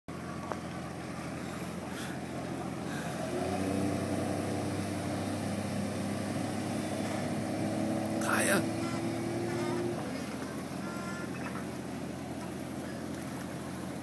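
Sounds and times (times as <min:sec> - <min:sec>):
outboard motor revving: 0:00.1 - 0:14.0.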